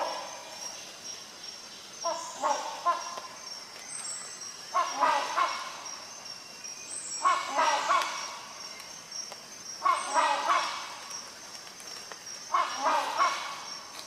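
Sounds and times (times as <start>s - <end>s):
hornbill calling: 2.0s - 3.3s, 4.7s - 6.2s, 7.1s - 8.6s, 9.8s - 11.2s, 12.4s - 13.9s.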